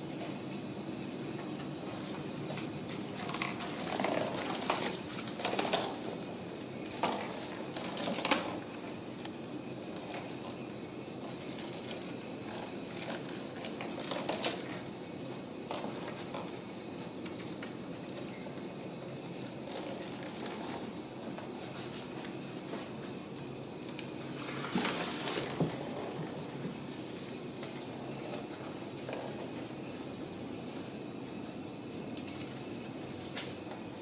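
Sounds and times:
small bell jingling: 1.1s - 14.9s, 17.8s - 21.0s.

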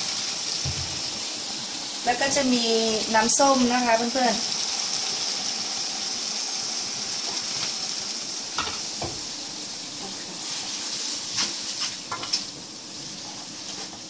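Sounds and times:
noodles sizzling in a pan: 0.0s - 14.0s
spatula scraping a pan: 10.0s - 14.0s.

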